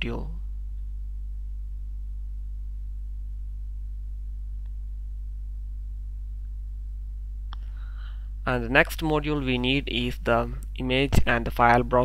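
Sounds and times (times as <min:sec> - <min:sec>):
low electrical hum: 0:00.0 - 0:12.0
faint click: 0:07.5 - 0:07.7.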